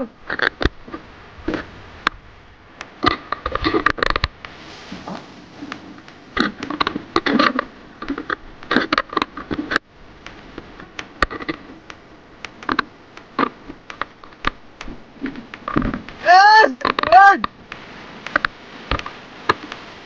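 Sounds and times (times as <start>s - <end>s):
handling noise on camera: 3.0s - 11.9s, 12.6s - 16.2s.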